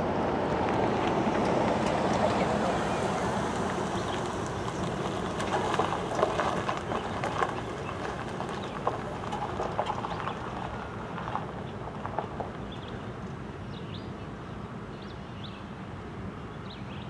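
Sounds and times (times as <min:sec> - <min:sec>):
rumble of passing train cars: 0:00.0 - 0:17.0
train wheels clicking over rail joints: 0:03.5 - 0:12.4.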